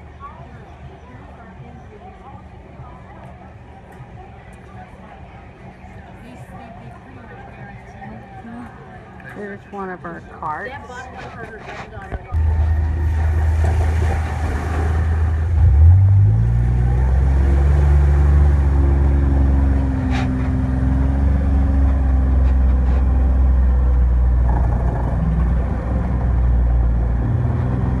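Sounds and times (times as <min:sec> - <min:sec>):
off-road vehicle engine running: 0:12.1 - 0:28.0.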